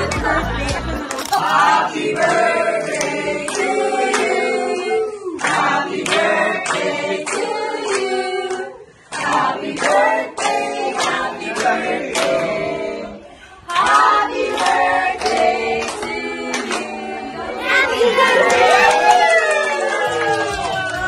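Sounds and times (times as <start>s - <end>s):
group of people singing: 0.0s - 19.2s
hands clapping in time: 18.4s - 21.0s.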